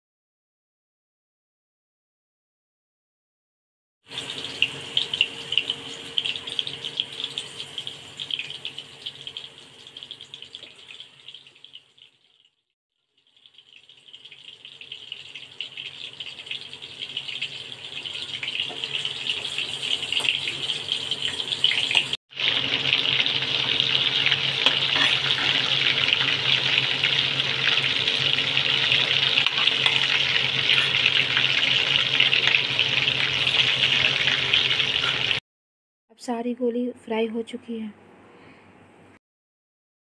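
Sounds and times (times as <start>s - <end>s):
meatballs sizzling in hot oil: 4.1s - 35.4s.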